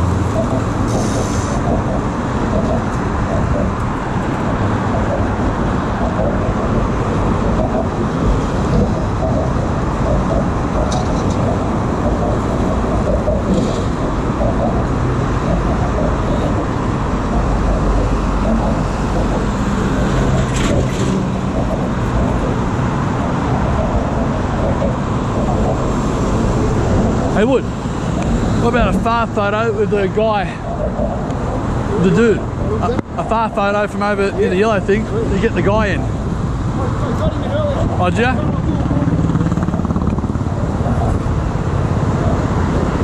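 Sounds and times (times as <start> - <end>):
heavy vehicle engine humming past: 0.0 - 43.0
traffic noise: 0.0 - 43.0.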